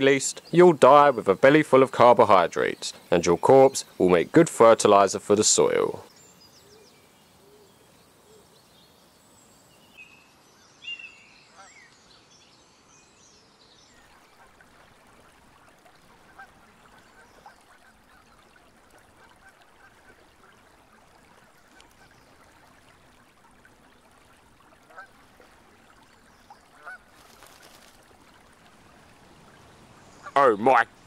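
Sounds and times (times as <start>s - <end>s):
bird calls: 5.6s - 10.2s, 10.8s - 12.3s, 15.8s - 22.7s, 25.9s - 28.5s, 29.4s - 31.0s
faint waterfowl calls: 11.5s - 11.9s, 14.0s - 31.0s.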